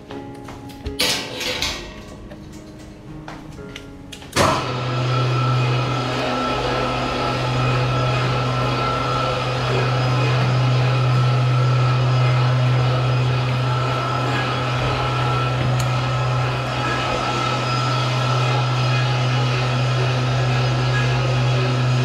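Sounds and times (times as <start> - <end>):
low electric hum: 1.4 - 22.0
thin steady whine: 4.5 - 22.0.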